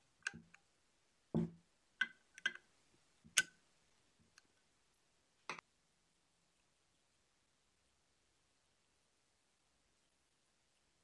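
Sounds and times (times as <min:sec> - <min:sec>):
dull knock: 0:01.4 - 0:01.6.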